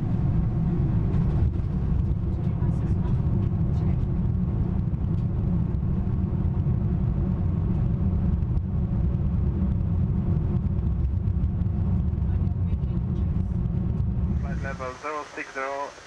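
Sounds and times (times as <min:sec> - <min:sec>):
airliner rolling on runway: 0:00.0 - 0:16.0.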